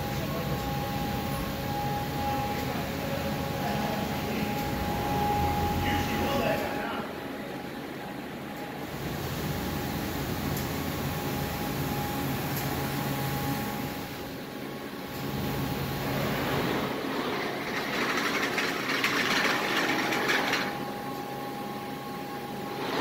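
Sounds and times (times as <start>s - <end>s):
high whine: 0.0s - 8.4s
factory machinery hum: 0.0s - 23.0s.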